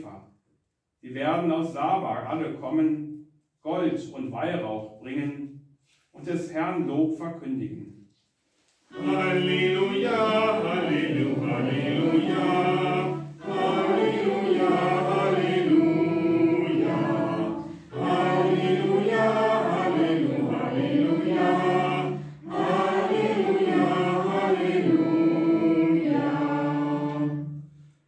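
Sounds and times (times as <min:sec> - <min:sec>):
voices singing hymn unaccompanied: 0:08.9 - 0:27.8.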